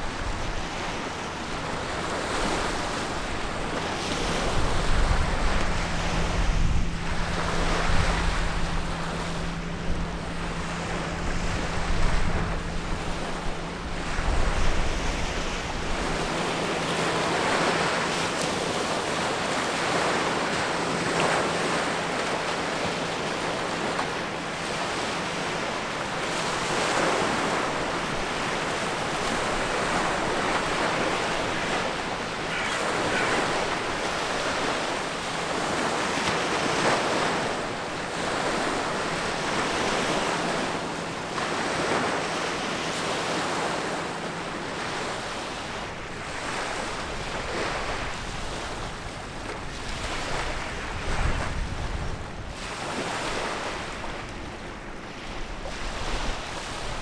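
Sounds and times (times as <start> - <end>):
wind rumbling on microphone: 0.0 - 18.4, 45.3 - 57.0
river water washing in: 0.0 - 57.0
ship engine hum: 0.0 - 57.0.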